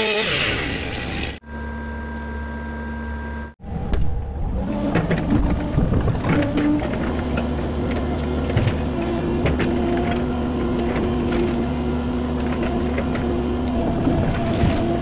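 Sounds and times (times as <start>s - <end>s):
excavator diesel engine and hydraulics: 0.0s - 15.0s.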